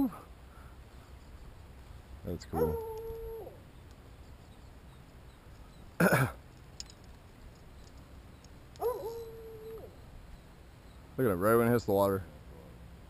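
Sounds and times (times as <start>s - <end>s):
man coughing: 6.0s - 6.4s.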